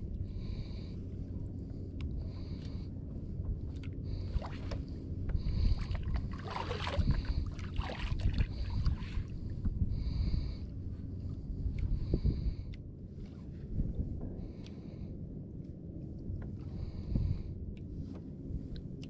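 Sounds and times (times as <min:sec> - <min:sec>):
low rumble: 0:00.0 - 0:19.0
water lapping against boat hull: 0:01.7 - 0:13.9.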